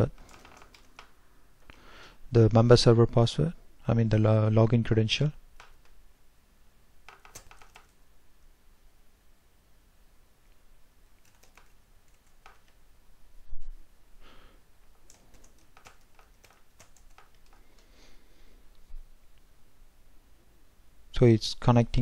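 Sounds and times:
keyboard typing clicks: 0.0 - 1.1, 5.6 - 6.0, 7.1 - 8.0, 11.2 - 12.8, 14.8 - 17.9.

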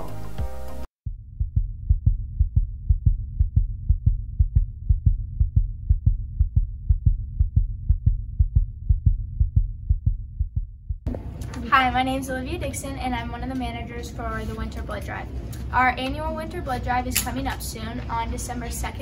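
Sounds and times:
low hum: 0.0 - 17.1
heartbeat: 1.0 - 11.1.

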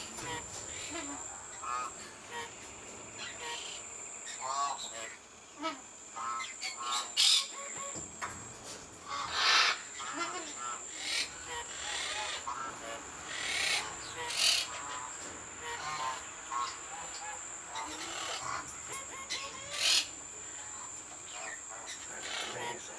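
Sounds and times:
parrots calling: 0.0 - 22.9
harsh rasping squawks: 9.0 - 22.9.

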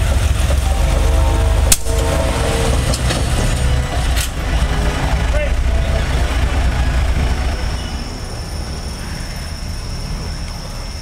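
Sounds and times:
diesel locomotive rumbling: 0.0 - 11.0
sharp metallic clank: 1.6 - 4.4.

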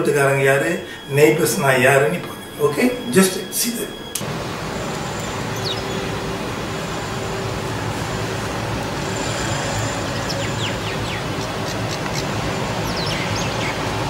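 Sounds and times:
faint steady hum: 0.0 - 14.0
low traffic-like rumble: 0.0 - 14.0
small birds chirping: 4.8 - 7.4, 8.7 - 14.0.

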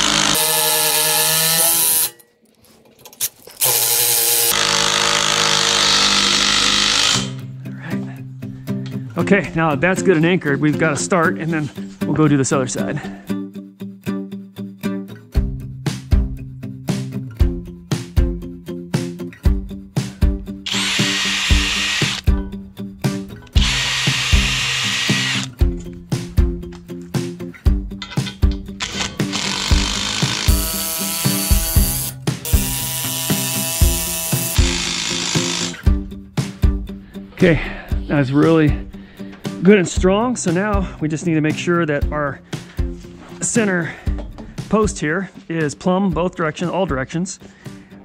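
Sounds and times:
power driver driving screw: 3.6 - 7.4, 20.7 - 22.3, 23.6 - 25.5, 28.8 - 35.8.

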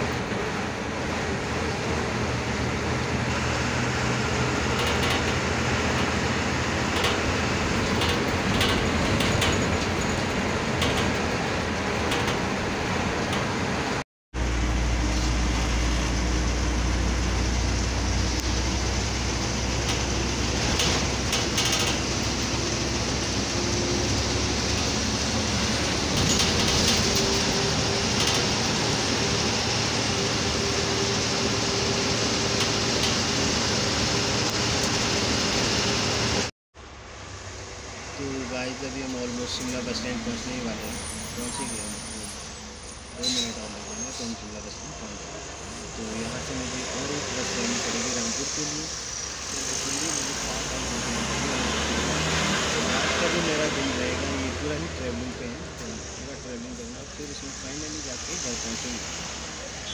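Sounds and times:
bus engine running: 0.0 - 59.9
road noise: 0.0 - 59.9
loose fittings rattling: 4.5 - 13.7, 19.3 - 29.4.

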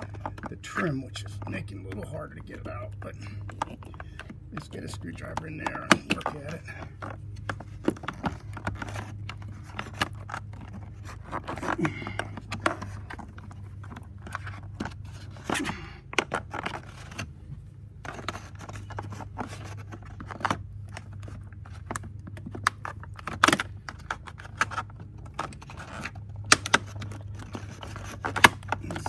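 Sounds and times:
plastic scraping and cracking: 0.0 - 29.0
steady low hum: 0.0 - 29.0.

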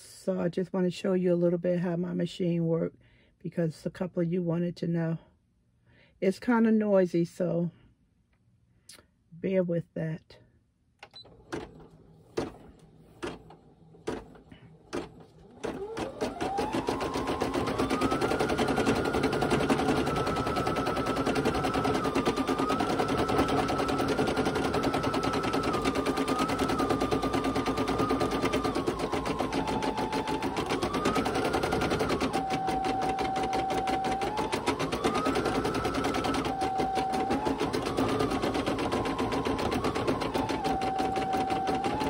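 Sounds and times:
rapid needle clatter: 14.9 - 42.0
embroidery machine motor whine: 15.4 - 42.0.

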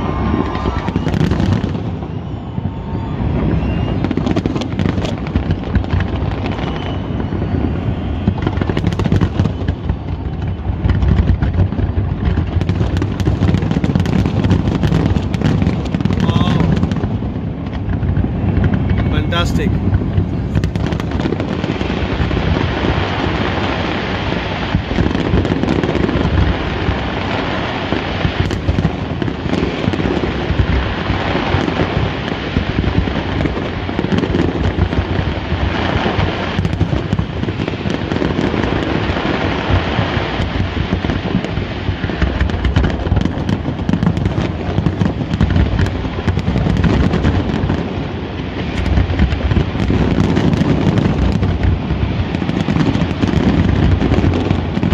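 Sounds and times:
fireworks bangs and crackles: 0.0 - 54.9.

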